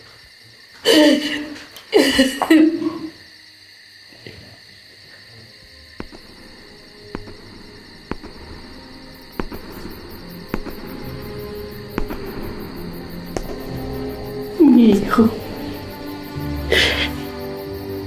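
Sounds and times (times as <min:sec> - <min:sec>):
steady high hiss: 0:00.0 - 0:18.0
low held notes: 0:05.7 - 0:18.0
sharp ticks: 0:06.0 - 0:14.1.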